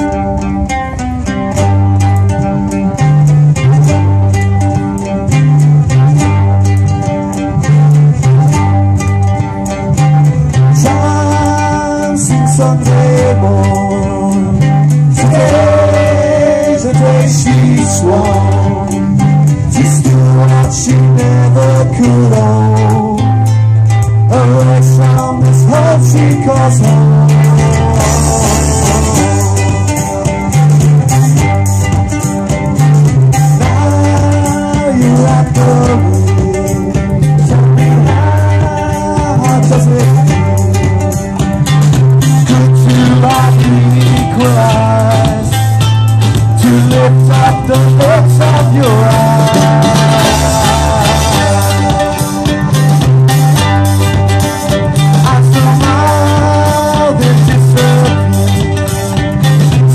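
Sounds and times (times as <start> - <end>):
acoustic guitars and ukulele: 0.0 - 59.9
bass guitar line: 0.0 - 59.9
drums: 0.0 - 59.9
person singing: 10.5 - 23.5, 24.2 - 30.7, 33.3 - 41.4, 42.2 - 53.5, 54.9 - 59.9
person singing lead: 33.6 - 40.7, 46.6 - 52.6.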